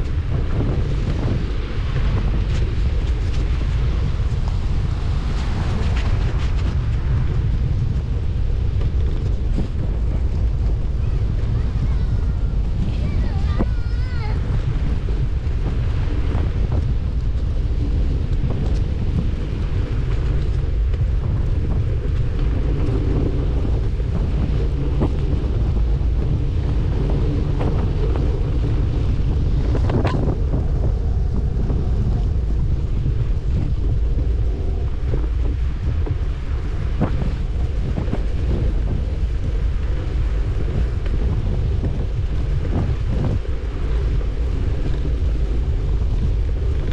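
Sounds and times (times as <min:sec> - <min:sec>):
wind buffeting microphone: 0:00.0 - 0:46.9.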